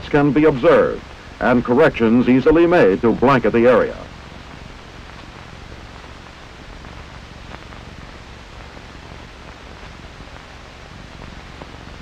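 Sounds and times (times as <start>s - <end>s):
film soundtrack hiss and hum: 0.0s - 12.0s.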